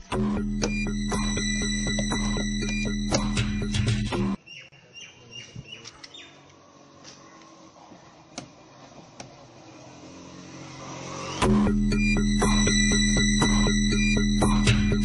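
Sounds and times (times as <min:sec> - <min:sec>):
street ambience: 0:00.0 - 0:15.0
small birds chirping: 0:04.4 - 0:10.0.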